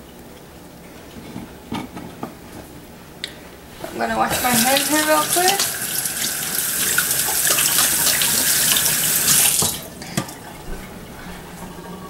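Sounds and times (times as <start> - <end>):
faucet running into metal sink: 3.8 - 12.0.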